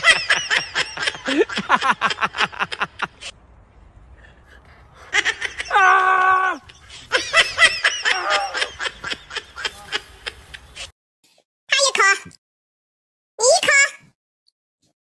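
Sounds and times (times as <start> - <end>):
person laughing: 0.0 - 3.3, 5.0 - 10.9
person crying out: 5.7 - 6.7, 8.0 - 8.7.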